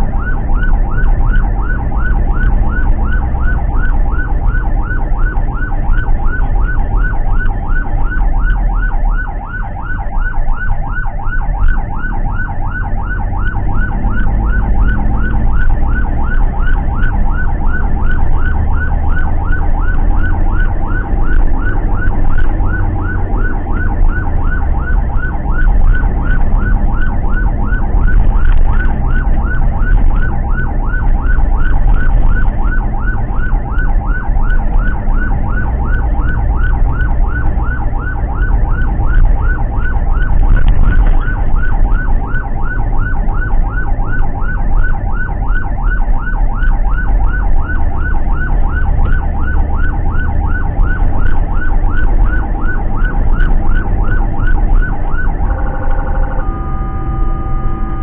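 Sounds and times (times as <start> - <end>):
ambulance siren yelping: 0.0 - 58.0
engine and road rumble: 0.0 - 58.0.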